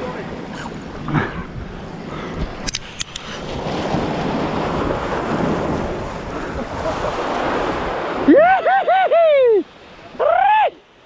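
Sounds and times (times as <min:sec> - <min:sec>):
wind buffeting microphone: 0:00.0 - 0:08.3
surf washing against rocks: 0:00.0 - 0:11.0
sharp clicks: 0:02.6 - 0:03.3.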